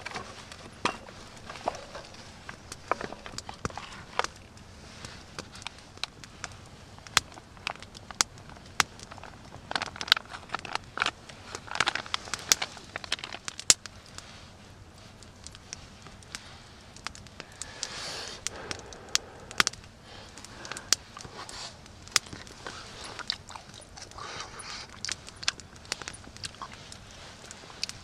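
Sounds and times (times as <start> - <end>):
sharp crackles and clicks: 0.0 - 28.0
foil pouch crinkling: 9.1 - 13.5.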